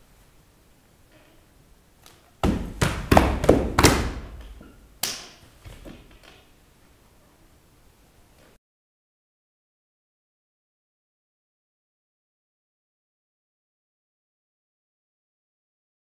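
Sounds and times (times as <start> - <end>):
body percussion slaps and thuds: 2.0 - 6.2.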